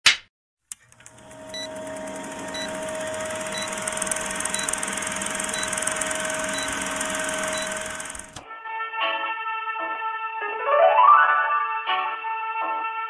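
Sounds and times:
film projector whirring and rattling: 0:00.7 - 0:08.4.

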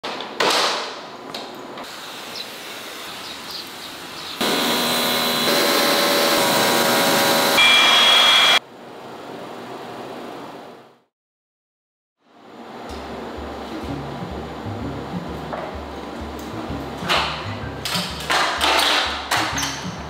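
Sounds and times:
high-pressure water spray hissing: 0:01.9 - 0:07.6.

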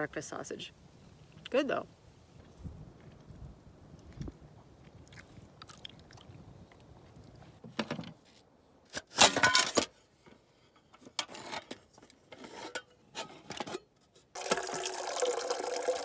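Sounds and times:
metal pots and lid clattering: 0:09.1 - 0:09.9, 0:12.4 - 0:14.0.

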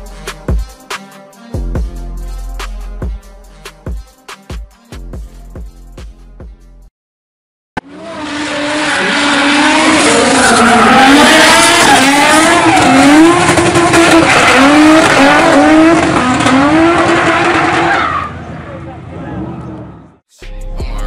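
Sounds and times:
car engine revving: 0:07.8 - 0:20.0.

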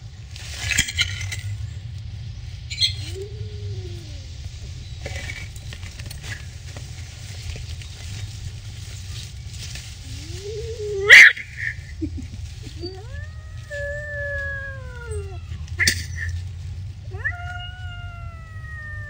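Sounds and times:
low rumble: 0:00.0 - 0:19.0
rustles and clicks: 0:00.0 - 0:19.0
kitten mewing: 0:12.6 - 0:16.4, 0:17.1 - 0:19.0.

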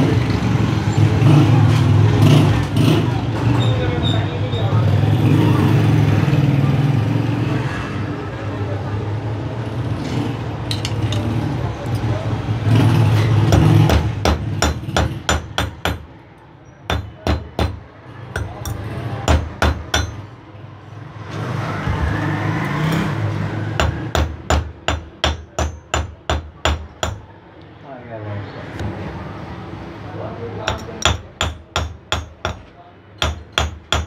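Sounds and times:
metal-on-metal taps: 0:10.7 - 0:11.3.

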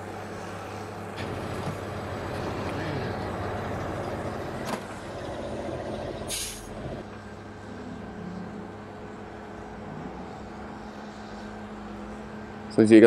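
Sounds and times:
steady low hum: 0:00.0 - 0:13.0
short hiss: 0:06.3 - 0:06.7.

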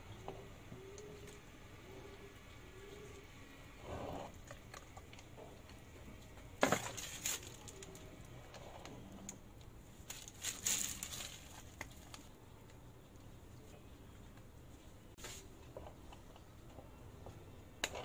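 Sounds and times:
piping bag rustling: 0:10.0 - 0:12.3.

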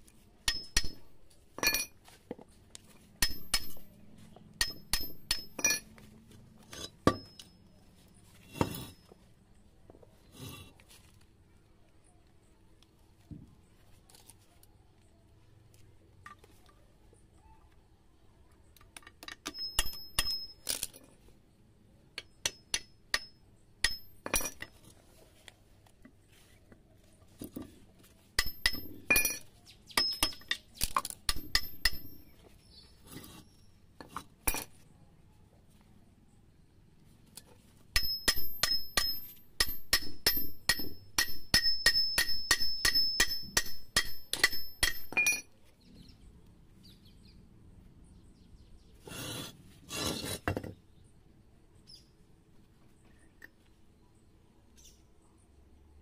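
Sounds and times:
hammer tapping on steel: 0:28.4 - 0:29.4, 0:38.0 - 0:45.4.

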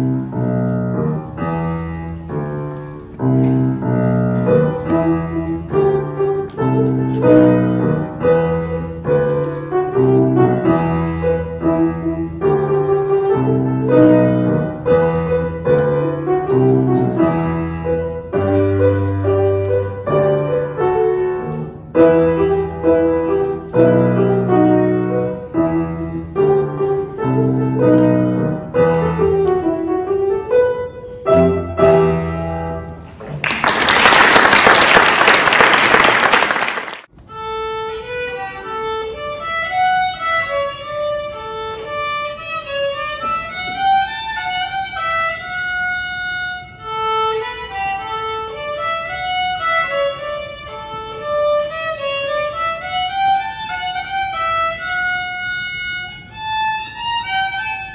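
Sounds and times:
grand piano piece: 0:00.0 - 0:57.9
solo violin melody: 0:04.0 - 0:32.9, 0:37.2 - 0:57.9
audience applauding: 0:33.4 - 0:37.1.

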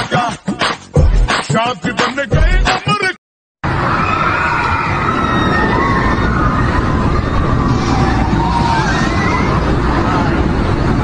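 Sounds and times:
outdoor rumble and hiss: 0:03.7 - 0:11.0.

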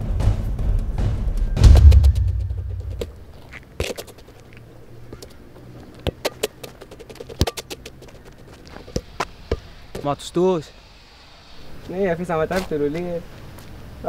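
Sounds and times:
deep drum hit: 0:00.0 - 0:03.3
ball kicked and bouncing on concrete: 0:01.6 - 0:04.5, 0:05.1 - 0:10.1.

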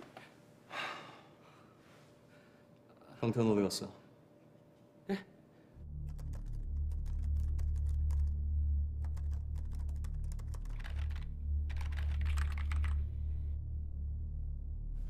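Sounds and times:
steady low hum: 0:05.8 - 0:15.0
rapid keyboard typing: 0:06.0 - 0:08.4, 0:09.0 - 0:13.1.

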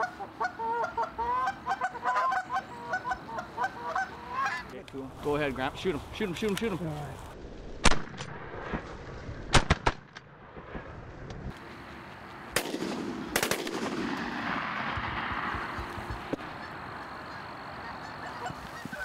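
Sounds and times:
geese honking: 0:00.0 - 0:04.7, 0:16.4 - 0:19.0
shotgun shots: 0:07.8 - 0:08.8, 0:09.5 - 0:10.2, 0:12.6 - 0:15.8.

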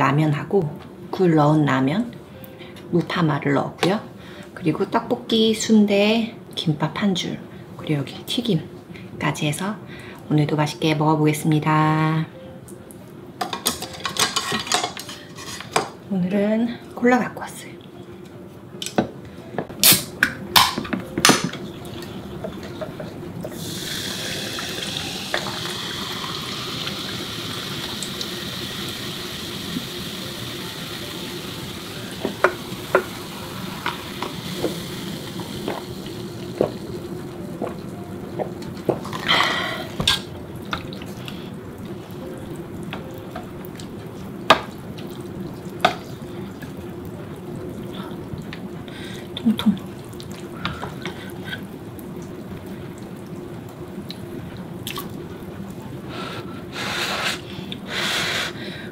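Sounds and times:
can opening clicks: 0:19.8 - 0:21.5
soda fizzing: 0:23.4 - 0:40.1.

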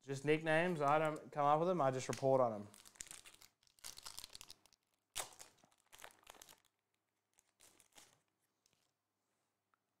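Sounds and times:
foil wrapper tearing and crinkling: 0:02.7 - 0:08.8.

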